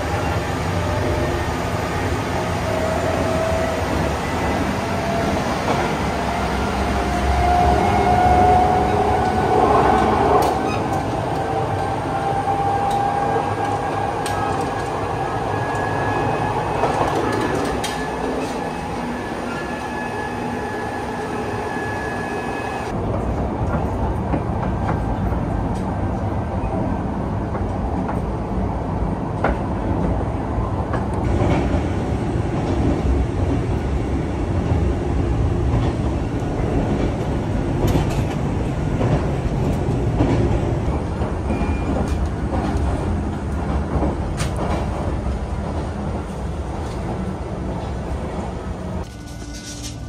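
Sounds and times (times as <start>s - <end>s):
train wheels rumbling on rails: 0.0s - 50.0s.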